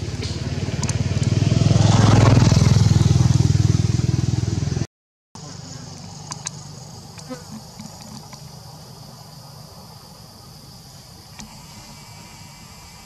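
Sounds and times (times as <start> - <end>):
high insect buzz: 5.4 - 13.0
faint clicks: 6.2 - 8.5.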